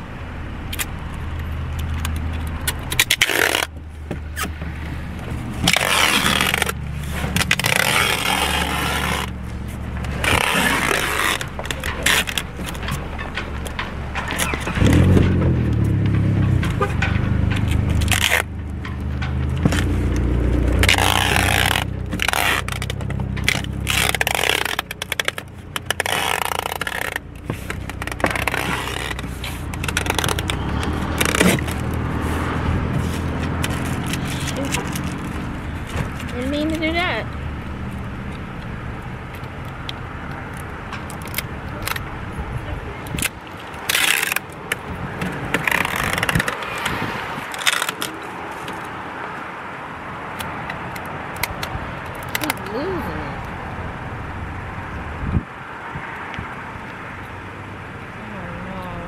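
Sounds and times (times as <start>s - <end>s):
packing tape pulled off roll: 2.6s - 3.7s, 5.6s - 9.4s, 10.2s - 12.8s, 20.8s - 35.5s, 43.1s - 44.8s, 45.6s - 48.9s.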